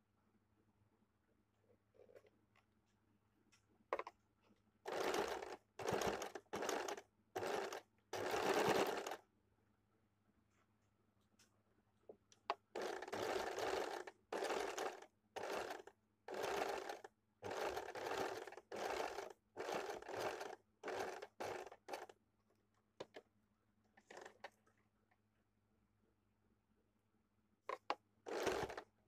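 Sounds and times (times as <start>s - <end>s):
sewing machine stitching: 4.9s - 9.2s, 12.5s - 22.1s, 24.0s - 24.5s, 27.7s - 28.9s.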